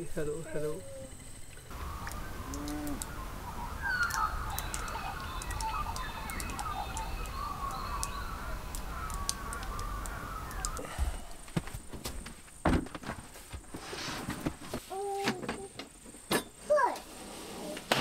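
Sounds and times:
birds chirping and warbling: 0.0 - 11.4
thin whistled bird notes: 0.8 - 10.8.

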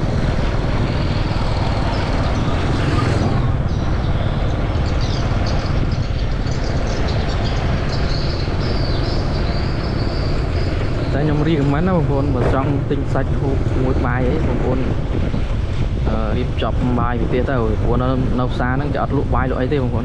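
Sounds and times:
vehicle low rumble: 0.0 - 20.0.

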